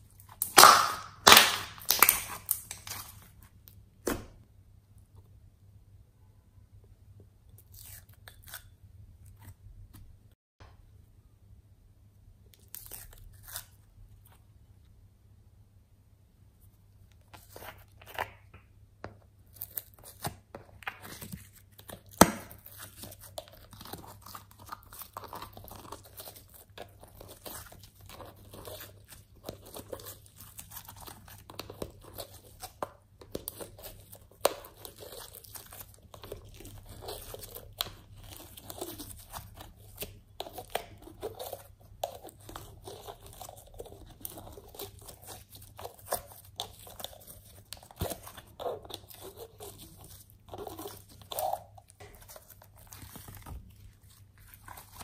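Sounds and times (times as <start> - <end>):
slime crackling and popping: 0.2 - 3.2
sharp slime pop: 0.4 - 3.0.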